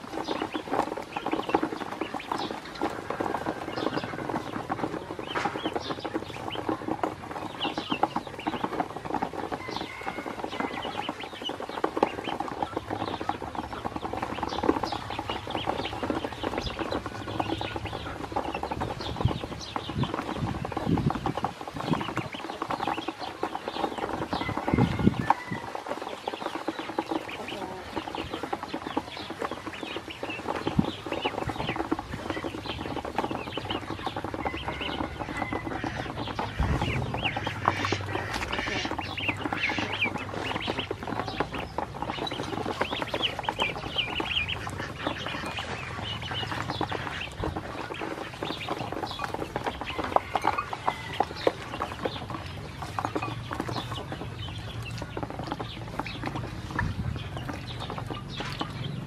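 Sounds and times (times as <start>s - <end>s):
bills pecking in plastic tub: 0.0s - 59.0s
ducklings peeping: 0.0s - 59.0s.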